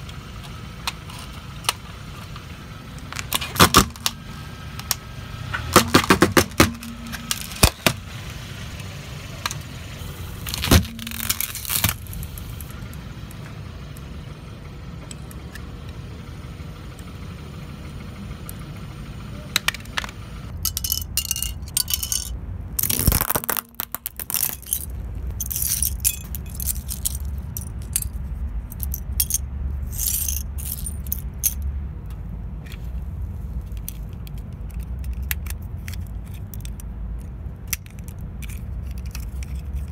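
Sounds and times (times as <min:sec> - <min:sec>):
plastic pieces rattling: 0:05.8 - 0:08.0, 0:10.4 - 0:12.7, 0:20.5 - 0:31.6, 0:33.7 - 0:39.9
low rumble: 0:06.6 - 0:35.8
plastic toy cracking under tyre: 0:10.4 - 0:12.4, 0:22.8 - 0:24.7
small plastic clicks: 0:33.7 - 0:39.6.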